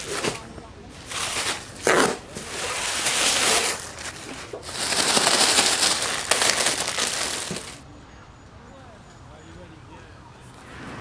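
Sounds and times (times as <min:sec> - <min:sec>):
paper and plastic crinkling: 0:00.0 - 0:07.8.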